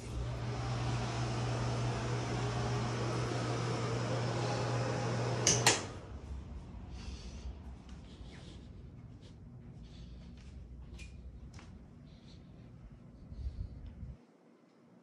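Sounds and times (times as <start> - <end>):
machine hum: 0.0 - 10.1.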